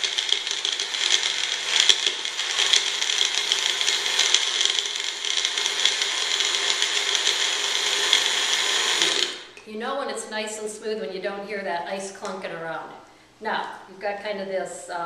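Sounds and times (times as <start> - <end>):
blender crushing ice: 0.0 - 9.5.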